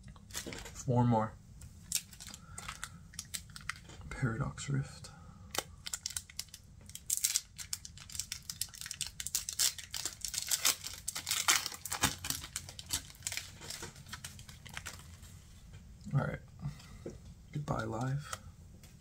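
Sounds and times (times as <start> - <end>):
foil wrapper tearing and crinkling: 1.9 - 3.9, 5.5 - 15.2.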